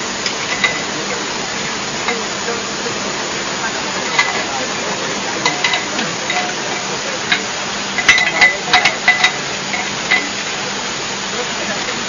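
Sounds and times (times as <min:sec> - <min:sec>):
steady hiss: 0:00.0 - 0:12.0
steel parts clinking: 0:00.2 - 0:01.3, 0:04.0 - 0:04.5, 0:05.4 - 0:10.4.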